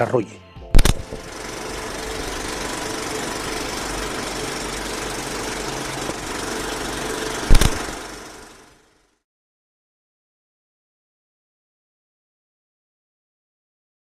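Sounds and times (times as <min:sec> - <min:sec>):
noisy rumble: 0:00.8 - 0:08.9.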